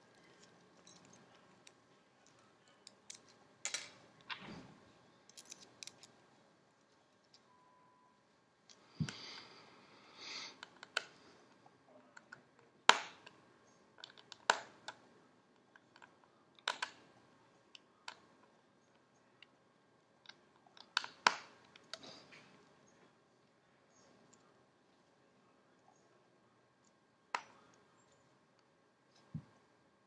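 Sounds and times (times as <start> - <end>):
sharp clicks of small parts: 5.3 - 6.1, 15.8 - 17.1.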